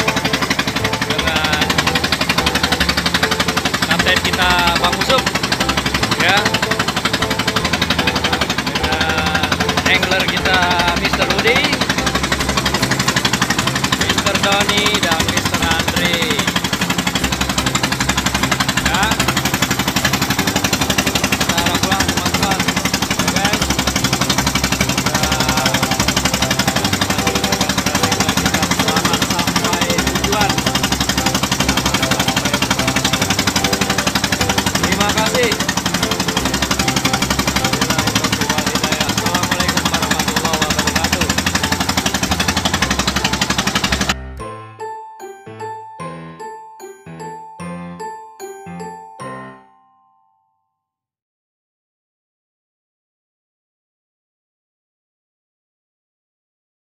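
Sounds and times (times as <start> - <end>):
boat engine chugging: 0.0 - 44.9.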